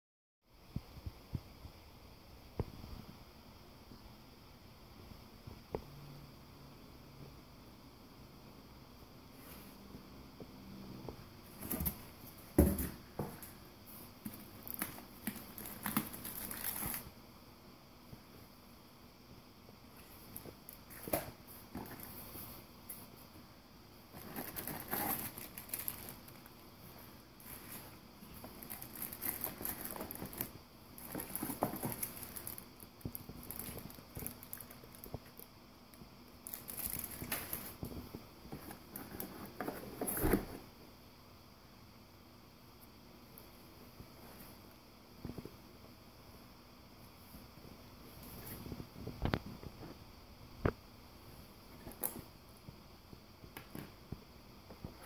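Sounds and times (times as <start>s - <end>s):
cardboard packaging being opened: 14.2s - 17.1s, 24.2s - 26.5s, 27.4s - 32.6s
plastic wrapping crinkling: 14.3s - 17.1s, 24.2s - 26.5s, 27.4s - 35.4s, 36.4s - 37.8s.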